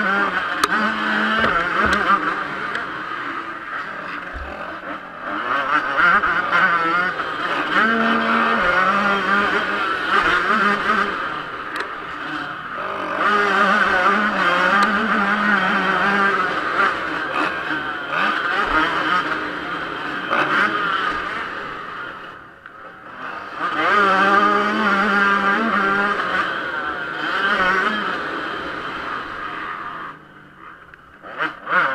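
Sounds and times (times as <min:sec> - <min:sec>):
two-stroke motocross engine revving: 0:00.0 - 0:31.9.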